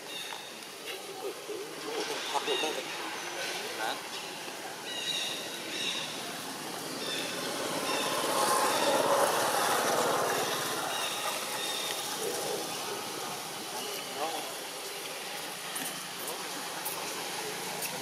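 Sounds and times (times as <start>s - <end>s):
vehicle passing: 5.3s - 14.8s.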